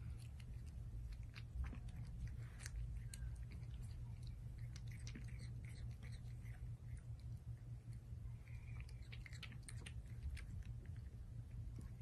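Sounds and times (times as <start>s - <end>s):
kitten chewing clicks: 0.0s - 12.0s
low steady hum: 0.0s - 12.0s.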